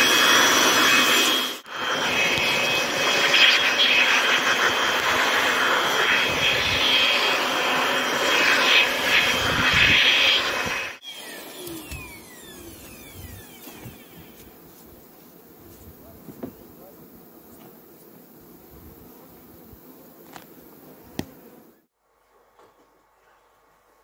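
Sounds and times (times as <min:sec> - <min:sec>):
small motor whirring: 0:00.0 - 0:16.6
faint outdoor sound: 0:00.0 - 0:24.0.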